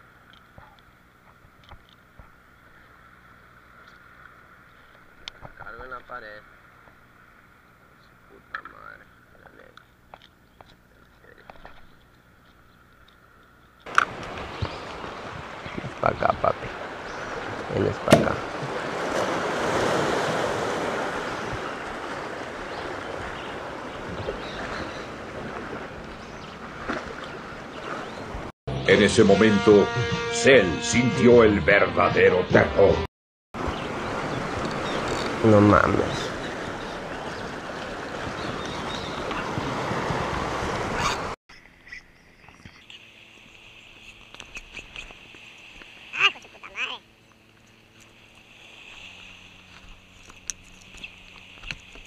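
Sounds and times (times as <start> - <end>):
surf washing against rocks: 13.9 - 28.5, 33.6 - 41.4, 43.0 - 47.0
wind buffeting microphone: 14.0 - 28.5, 33.6 - 41.4.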